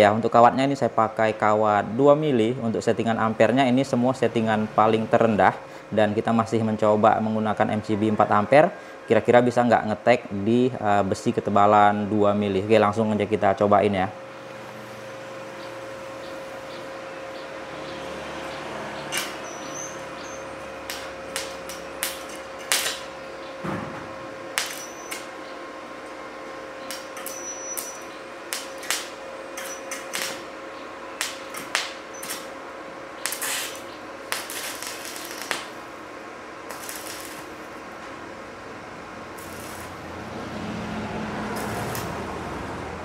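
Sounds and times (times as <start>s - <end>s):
steady hum: 0.0s - 43.0s
arc welding crackles and pops: 19.0s - 40.6s, 41.2s - 42.6s.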